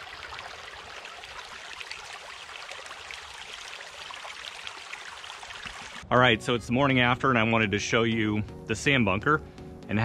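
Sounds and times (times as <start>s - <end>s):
creek flowing over rocks: 0.0s - 6.0s.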